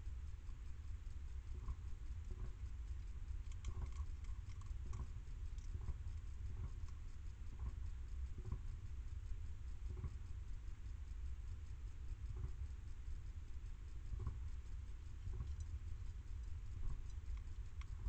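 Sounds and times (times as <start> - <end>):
low hum: 0.0 - 18.0
hedgehog chewing from metal dish: 1.7 - 7.8, 15.2 - 18.0.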